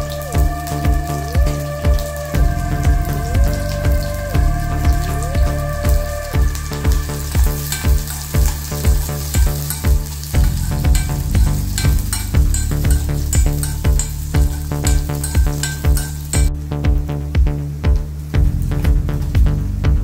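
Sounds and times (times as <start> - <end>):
garlic and onions sizzling in oil: 0.0 - 16.5
electronic music with steady beat: 0.0 - 20.0
spoon stirring: 7.2 - 16.5.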